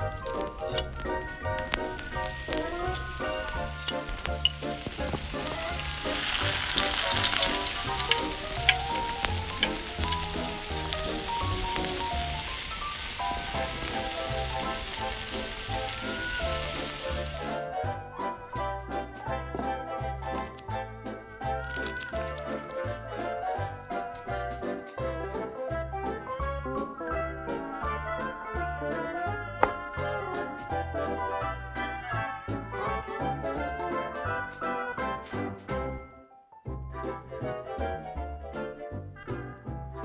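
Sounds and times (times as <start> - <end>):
steak sizzling in a pan: 0.0 - 17.7, 21.6 - 22.8.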